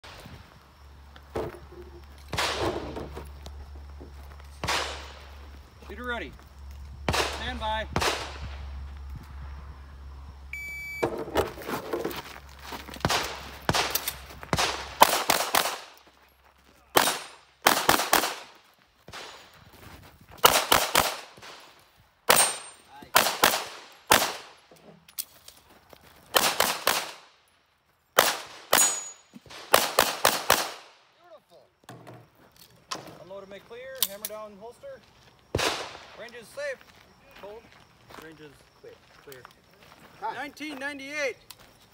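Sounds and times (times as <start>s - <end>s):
shot timer beep: 10.5s - 11.1s
handgun shots: 13.0s - 15.9s, 17.0s - 18.5s, 20.4s - 21.6s, 22.3s - 24.5s, 26.4s - 27.2s, 28.2s - 30.8s.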